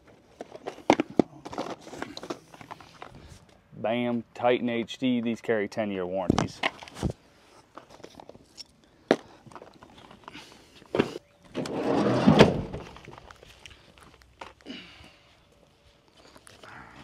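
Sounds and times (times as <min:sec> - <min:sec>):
scraping rustle: 0:10.9 - 0:13.6.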